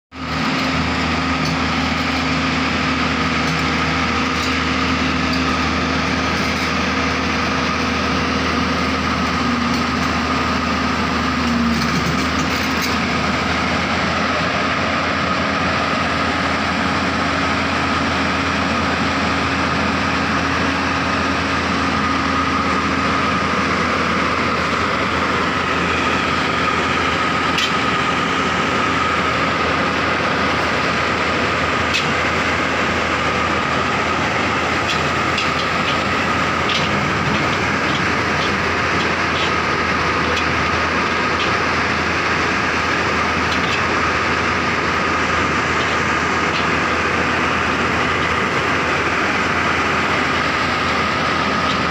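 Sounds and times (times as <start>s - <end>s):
excavator diesel engine running: 0.1s - 51.9s.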